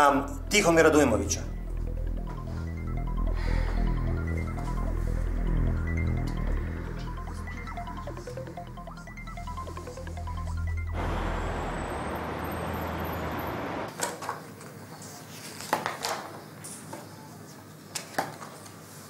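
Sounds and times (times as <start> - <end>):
background music: 0.0 - 12.6.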